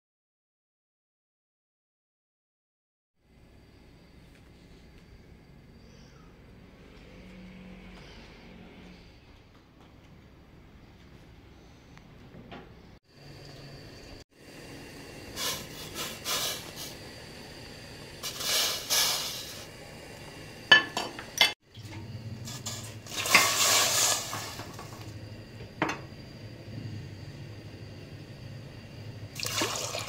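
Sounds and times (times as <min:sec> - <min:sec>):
dishes clinking against a pot: 0:20.7 - 0:21.6.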